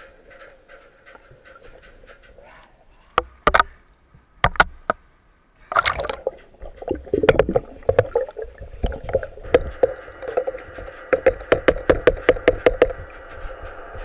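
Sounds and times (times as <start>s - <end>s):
underwater clicks and knocks: 3.1s - 3.8s, 4.4s - 5.0s, 5.7s - 14.0s
gush of air bubbles: 5.8s - 10.5s.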